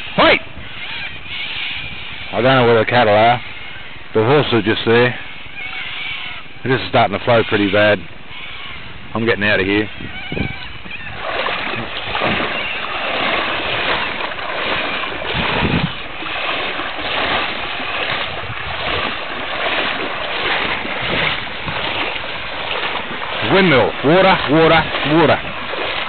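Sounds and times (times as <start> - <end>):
wind on microphone: 0.0 - 2.4, 8.0 - 26.0
rushing floodwater: 0.0 - 26.0.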